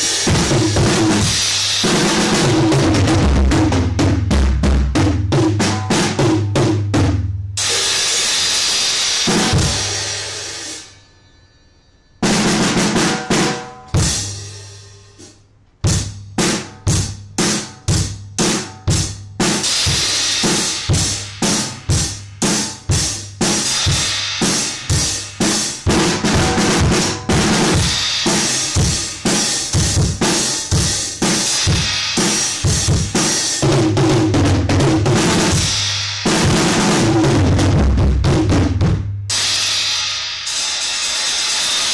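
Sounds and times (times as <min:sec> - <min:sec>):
drum kit playing a beat: 0:00.0 - 0:10.9, 0:12.2 - 0:41.9
cymbal ringing: 0:07.6 - 0:15.3, 0:39.3 - 0:41.9.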